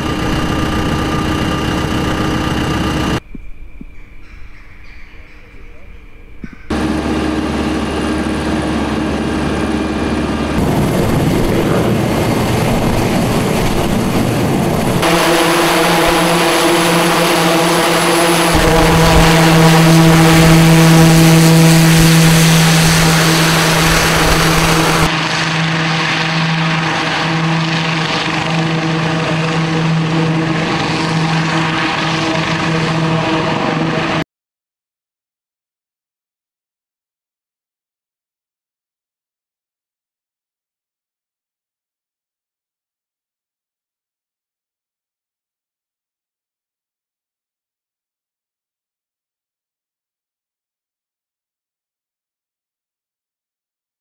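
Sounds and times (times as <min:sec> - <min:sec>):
helicopter droning whine: 0:00.0 - 0:03.2, 0:06.7 - 0:34.2.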